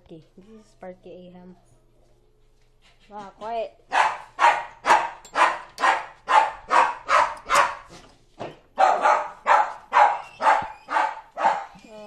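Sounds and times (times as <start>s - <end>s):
dog barking: 3.9s - 8.0s, 8.8s - 11.8s.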